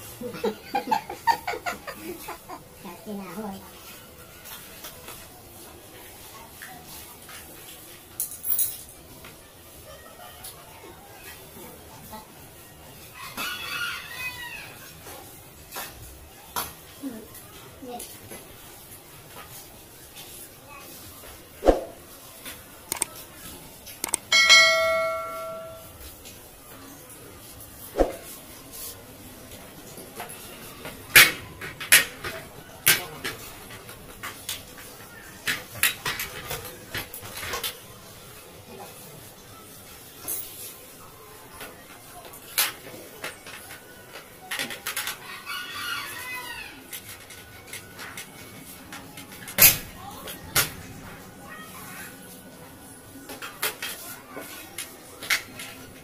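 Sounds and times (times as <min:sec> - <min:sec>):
rooster crowing: 0:13.1 - 0:14.9, 0:45.2 - 0:46.9
sharp clicks: 0:22.9 - 0:23.1, 0:24.0 - 0:24.3
metallic bell-like ring: 0:24.3 - 0:25.9.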